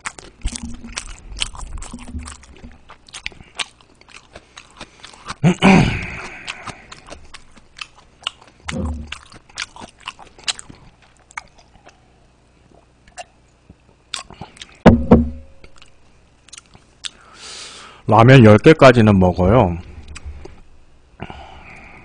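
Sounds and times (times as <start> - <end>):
close chewing with mouth clicks: 0.0 - 12.1, 12.7 - 14.8, 15.6 - 17.4
dull thud: 14.9 - 15.6.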